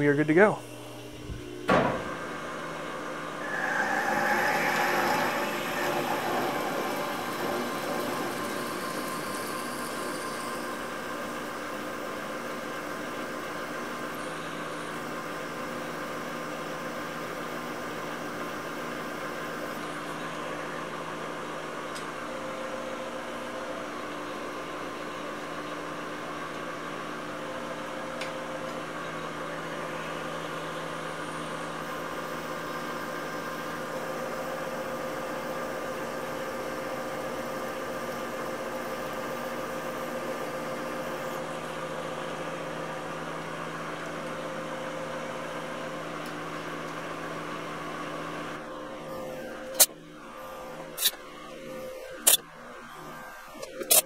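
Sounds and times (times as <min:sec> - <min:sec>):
drill boring into metal: 0:03.4 - 0:11.0
lathe humming: 0:03.4 - 0:11.9.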